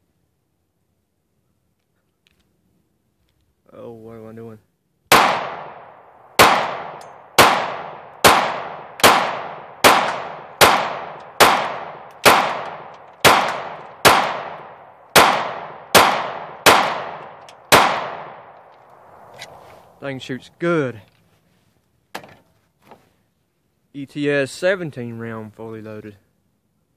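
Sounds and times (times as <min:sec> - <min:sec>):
pistol shots echoing: 0:05.1 - 0:19.2.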